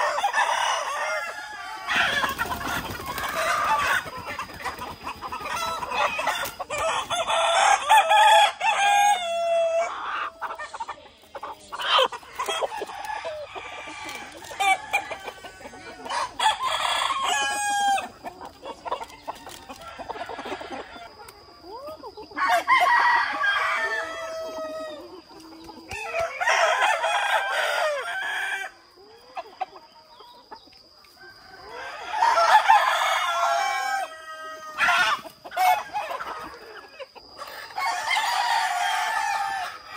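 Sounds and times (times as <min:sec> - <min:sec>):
roosters crowing: 0:00.0 - 0:21.4, 0:22.2 - 0:29.7, 0:31.1 - 0:39.9
hens clucking: 0:00.0 - 0:39.9.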